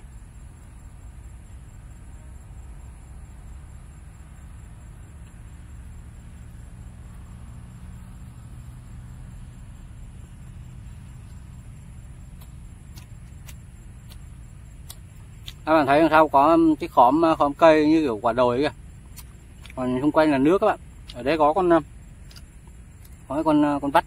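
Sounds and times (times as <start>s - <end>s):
high insect drone: 0.0s - 24.0s
faint ticks: 5.0s - 9.4s, 10.2s - 15.7s, 19.0s - 19.9s, 22.1s - 23.3s.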